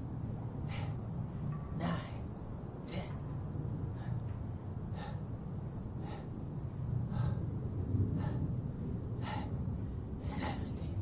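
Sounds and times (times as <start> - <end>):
man panting hard: 0.5 - 1.2, 3.8 - 11.0.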